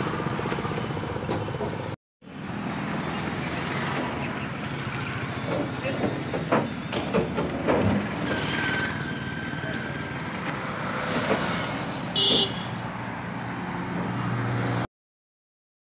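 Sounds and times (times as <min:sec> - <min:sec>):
street traffic noise: 0:00.0 - 0:14.9
vehicle horn beep: 0:12.2 - 0:12.8.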